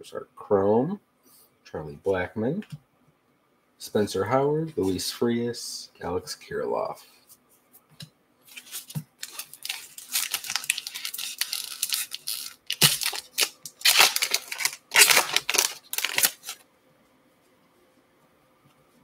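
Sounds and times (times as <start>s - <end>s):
wrapper tearing and crinkling: 8.5s - 16.6s.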